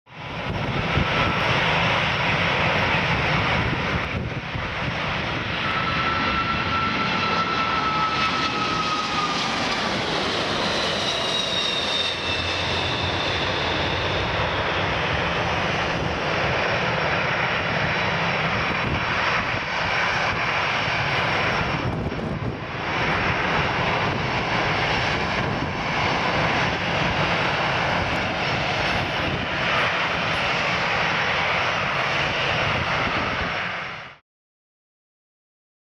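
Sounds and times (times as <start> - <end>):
jet engines roaring and whining: 0.1 - 34.2.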